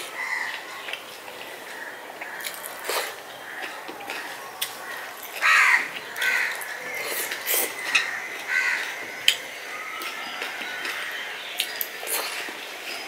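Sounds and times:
crow cawing: 0:04.8 - 0:07.0, 0:07.8 - 0:09.0.

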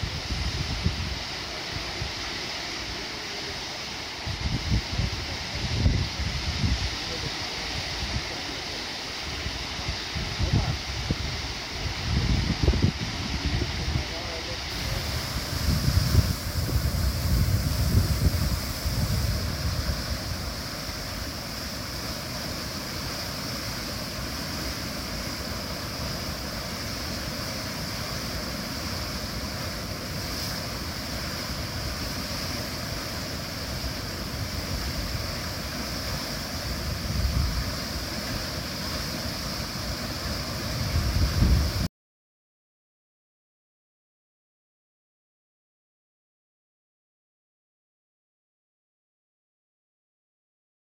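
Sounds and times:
wind buffeting microphone: 0:10.2 - 0:14.2, 0:14.8 - 0:21.3, 0:36.7 - 0:38.0, 0:40.6 - 0:41.9
river rapids rushing: 0:14.3 - 0:40.9.

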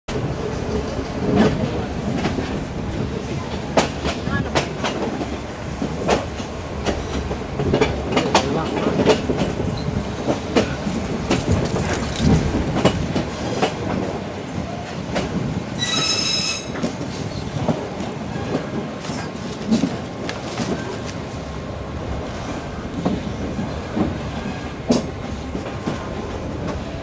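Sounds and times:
train carriages rumbling and rattling: 0:00.1 - 0:27.0
steel wheel squeal: 0:15.8 - 0:16.8.

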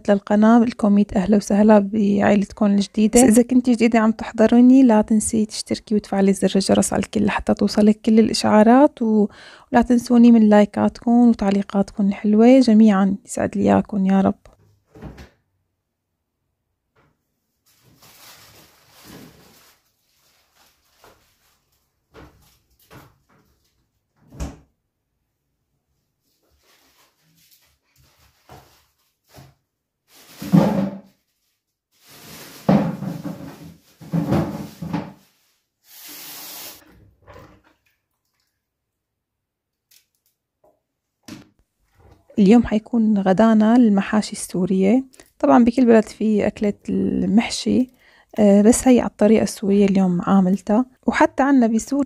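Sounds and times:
plastic bag rustling: 0:17.6 - 0:22.7, 0:30.1 - 0:36.8
kitchen tap running water: 0:35.8 - 0:36.9.

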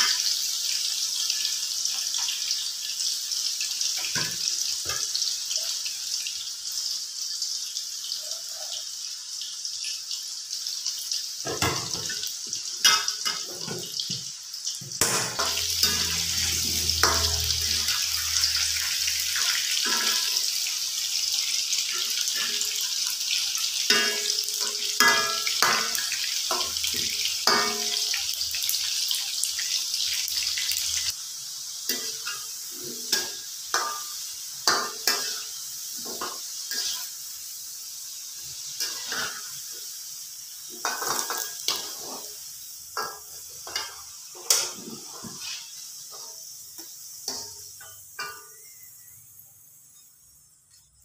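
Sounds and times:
food deep-frying in oil: 0:00.0 - 0:51.0
metal spoon scraping a pan: 0:15.0 - 0:20.6, 0:23.6 - 0:28.4, 0:31.9 - 0:37.1, 0:38.8 - 0:39.7, 0:40.7 - 0:49.2
low hum: 0:15.5 - 0:19.0.

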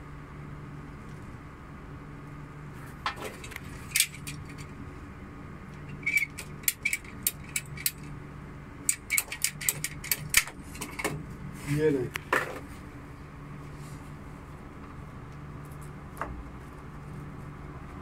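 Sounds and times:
pipe cutter ratchet clicking: 0:05.9 - 0:08.1, 0:08.9 - 0:10.5.

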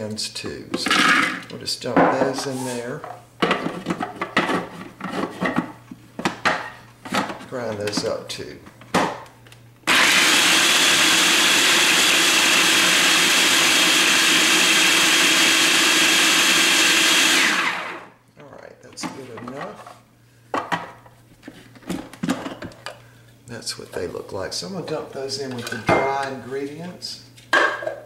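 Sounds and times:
food processor motor grinding: 0:09.8 - 0:18.1.

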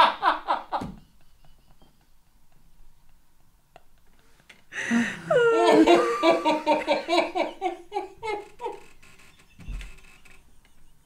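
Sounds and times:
men laughing hard: 0:00.0 - 0:02.1, 0:04.8 - 0:08.8.

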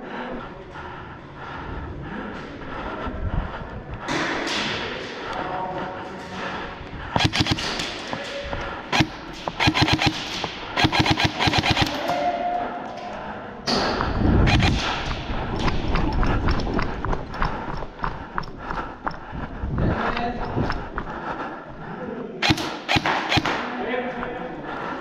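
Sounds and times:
airsoft guns firing bursts: 0:07.2 - 0:08.3, 0:08.9 - 0:12.1, 0:14.5 - 0:15.2, 0:22.4 - 0:23.8
running footsteps on concrete: 0:15.2 - 0:21.8.

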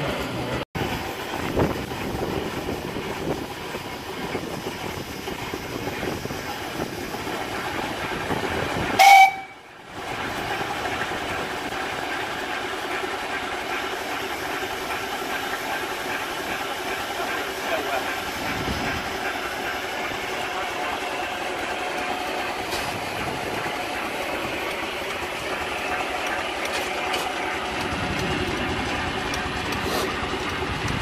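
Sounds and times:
steam hissing: 0:00.1 - 0:31.0
steam whistle blast: 0:09.0 - 0:09.7.

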